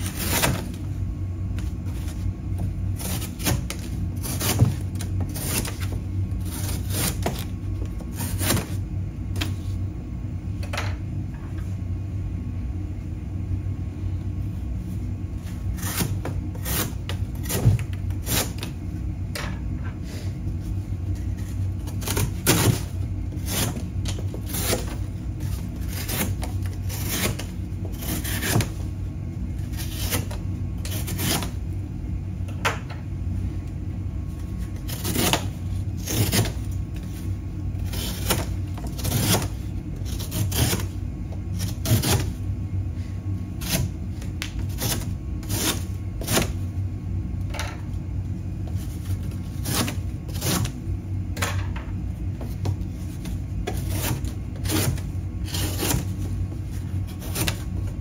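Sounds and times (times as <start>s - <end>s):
knife slicing cardboard: 0.0s - 0.9s, 1.6s - 8.8s, 15.4s - 18.7s, 21.1s - 28.9s, 29.6s - 31.6s, 34.5s - 37.2s, 37.8s - 42.4s, 43.6s - 46.6s, 48.7s - 50.8s, 52.4s - 58.0s
steady low hum: 0.0s - 58.0s.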